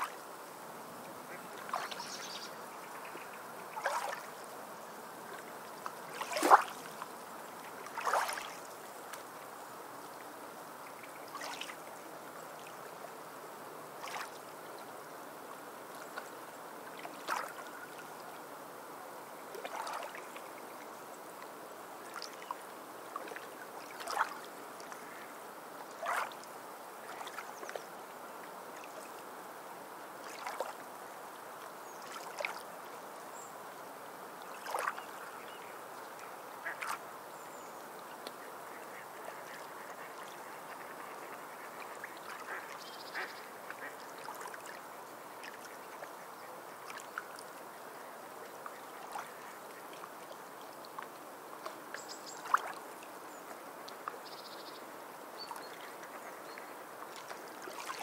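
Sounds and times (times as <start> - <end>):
water slapping and splashing: 3.7 - 4.3, 6.0 - 7.1, 7.7 - 9.2, 11.2 - 11.8, 14.0 - 14.4, 16.9 - 17.8, 19.5 - 20.5, 23.1 - 25.0, 25.9 - 27.8, 30.2 - 30.8, 34.5 - 35.1, 52.4 - 52.8, 57.1 - 58.0.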